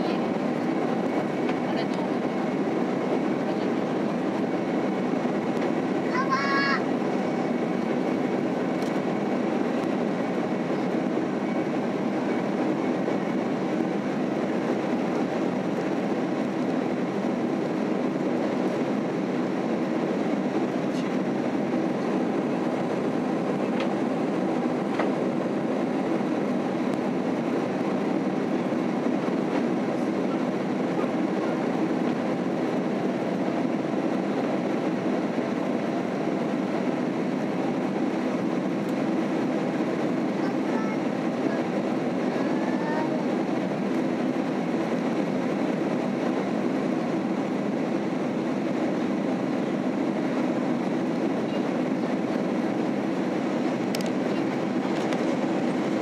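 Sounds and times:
airplane cabin engine rush: 0.0 - 56.0.

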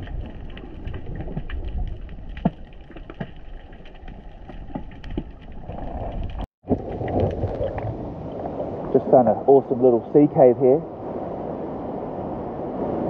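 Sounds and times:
sharp clicks and crackles: 0.0 - 6.5
muffled underwater rumble: 0.0 - 9.7.

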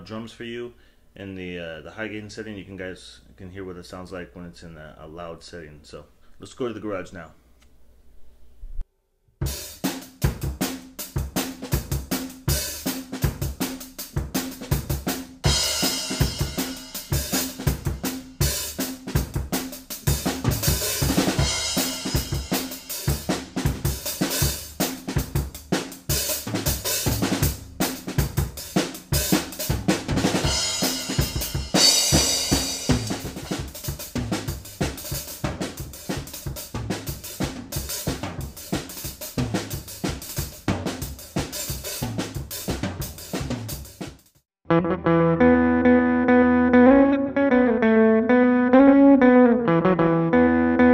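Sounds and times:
drum kit fast beat: 9.4 - 44.4.

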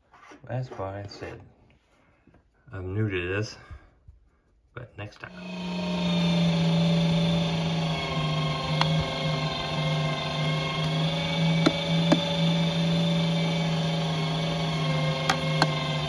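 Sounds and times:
electric meat grinder motor humming: 5.3 - 16.0.

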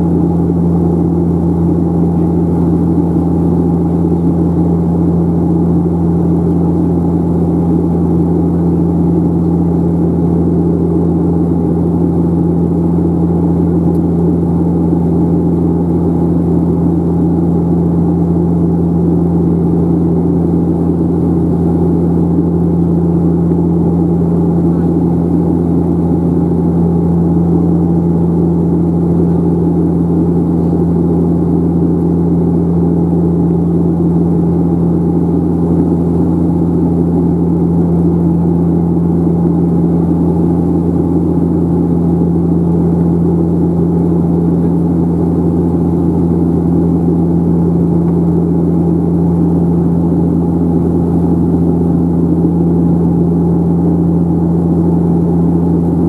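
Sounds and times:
turboprop engines droning in cabin: 0.0 - 56.0.

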